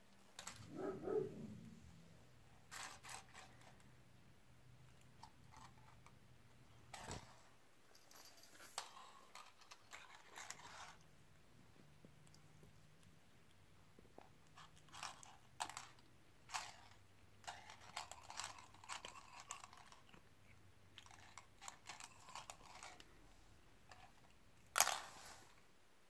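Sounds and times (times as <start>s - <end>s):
spring toy clattering across floor: 24.7s - 25.3s.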